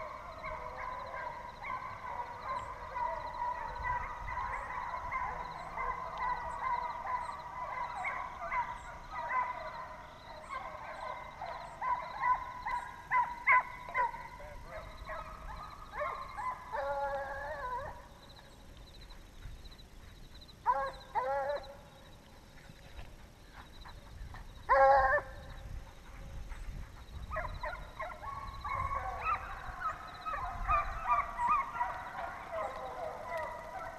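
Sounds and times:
hounds baying: 0.0s - 19.2s, 20.0s - 33.9s.

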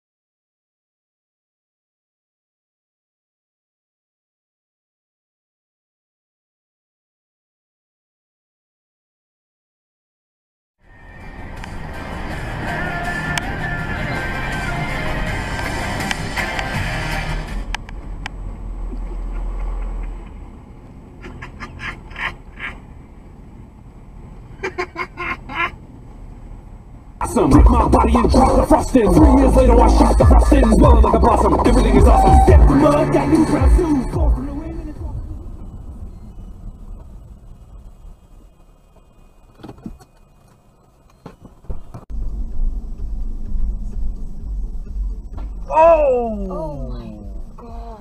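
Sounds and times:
car road and engine rumble: 10.8s - 48.0s.

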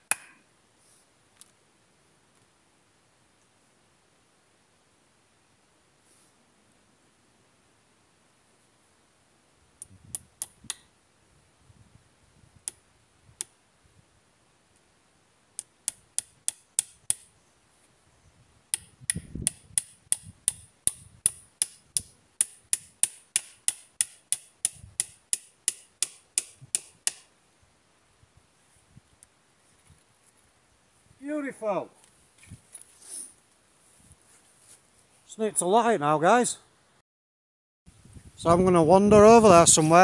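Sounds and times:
hatchet striking wooden pole: 0.0s - 0.3s, 15.8s - 17.3s, 18.7s - 27.3s.

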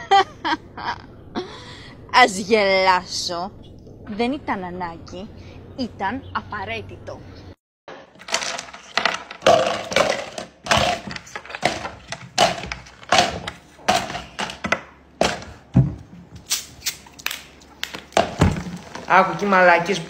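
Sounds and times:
ice cubes dropping into plastic cup: 8.2s - 15.4s.

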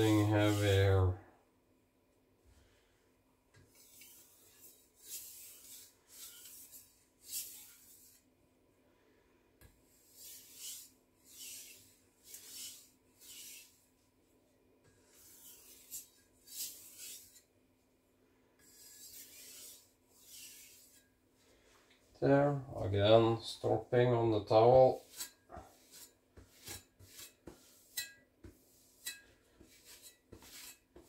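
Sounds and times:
knife scraping on sharpening stone: 3.8s - 8.2s, 10.1s - 13.7s, 15.1s - 17.5s, 18.6s - 21.0s, 25.0s - 31.0s.

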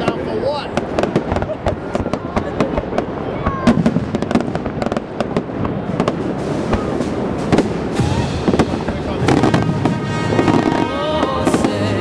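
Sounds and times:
fireworks bursting with bangs: 0.0s - 12.0s.

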